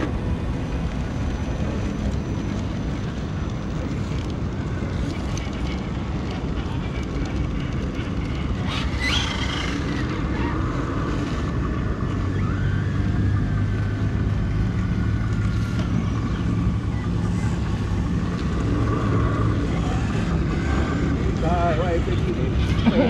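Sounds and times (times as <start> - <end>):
toy crawler trucks droning: 0.0 - 23.0.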